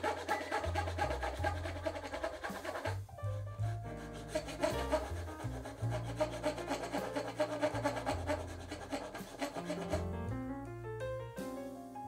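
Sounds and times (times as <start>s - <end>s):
hand saw cutting wood: 0.0s - 3.0s, 3.9s - 10.0s
background music: 0.0s - 12.0s.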